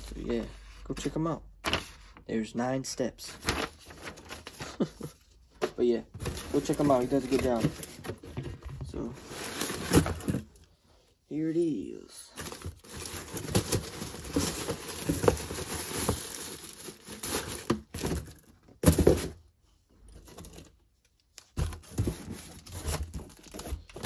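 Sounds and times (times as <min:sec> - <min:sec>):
packaging crinkling and tearing: 0:12.4 - 0:18.4.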